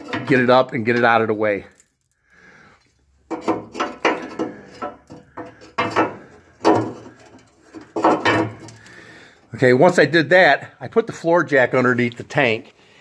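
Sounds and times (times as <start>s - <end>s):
wrench scraping and clicking on bolt: 3.3s - 8.8s.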